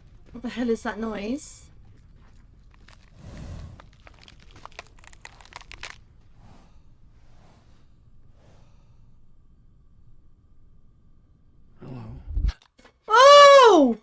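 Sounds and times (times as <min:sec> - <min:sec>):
sharp crackling crunching clicks: 0:02.5 - 0:06.2.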